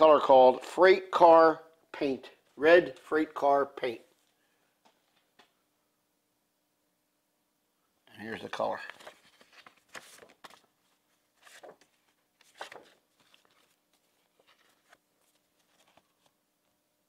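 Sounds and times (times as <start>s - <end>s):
paper card rustling: 8.4s - 16.8s.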